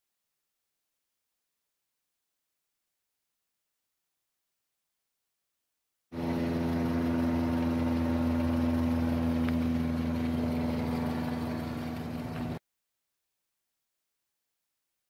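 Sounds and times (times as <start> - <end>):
engine humming steadily: 6.1 - 12.6.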